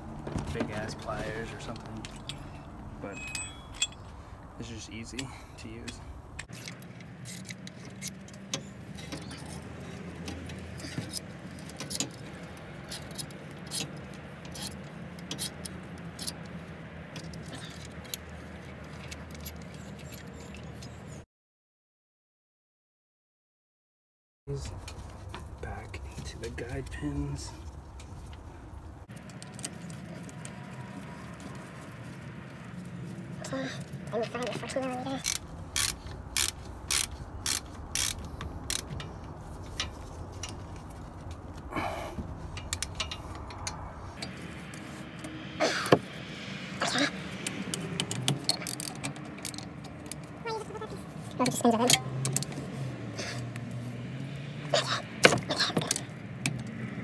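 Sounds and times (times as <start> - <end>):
metal clinks and scraping: 0.3 - 21.2, 42.2 - 53.7
ratchet wrench clicking: 12.9 - 16.5, 35.2 - 40.6, 47.3 - 50.3.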